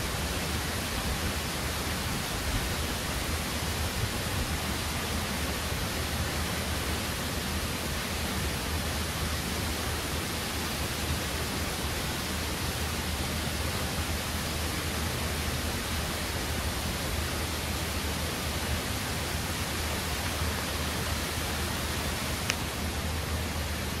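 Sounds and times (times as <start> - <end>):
waterfall rushing over rocks: 0.0 - 24.0
small click: 22.4 - 22.6.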